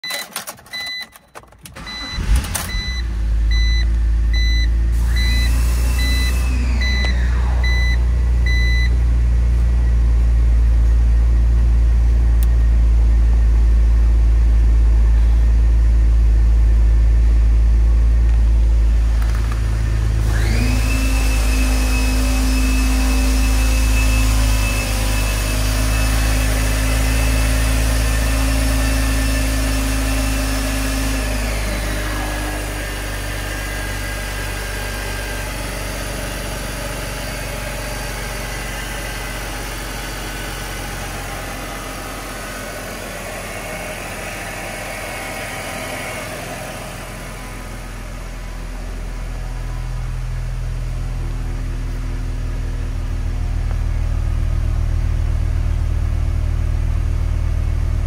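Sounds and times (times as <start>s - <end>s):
dashboard warning chime beeping: 0.0s - 9.0s
engine cranking and idling: 0.0s - 9.7s.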